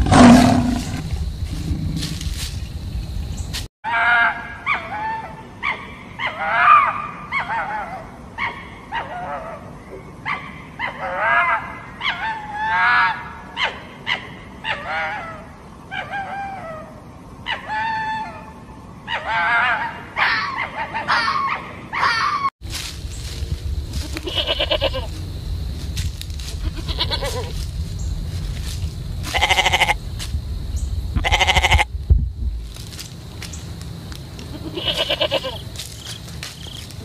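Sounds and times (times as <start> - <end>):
fox yelping barks: 3.9 - 18.4, 19.1 - 22.5.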